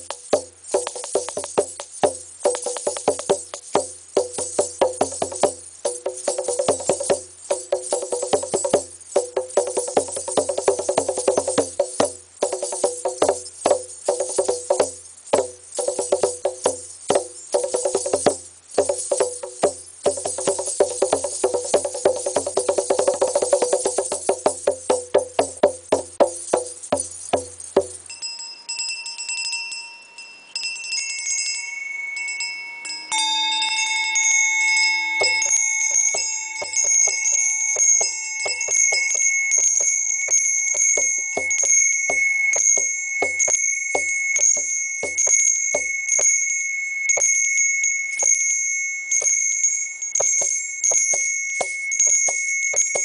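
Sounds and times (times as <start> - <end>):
hand drum strokes: 0.0 - 28.1, 36.1 - 46.3, 50.2 - 53.0
brass hand bell ringing: 0.0 - 53.0.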